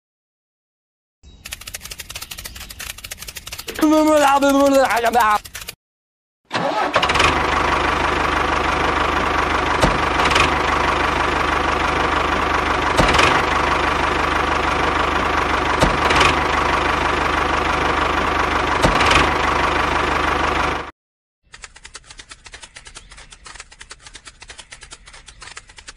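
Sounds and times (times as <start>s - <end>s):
short clicks: 1.4s - 5.8s, 21.5s - 25.9s
tractor engine idling: 1.5s - 5.7s, 6.5s - 20.9s.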